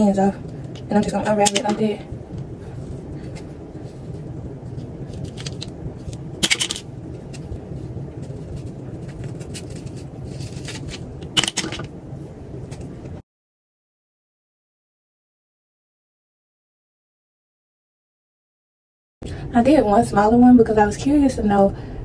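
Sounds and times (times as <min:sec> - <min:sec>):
low handling rumble: 0:00.0 - 0:13.2.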